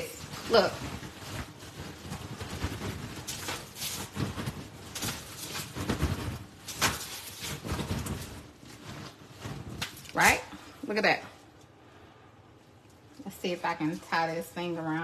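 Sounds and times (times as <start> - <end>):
contents sloshing and thudding: 0.0 - 10.1
plastic bag crinkling: 0.0 - 11.7.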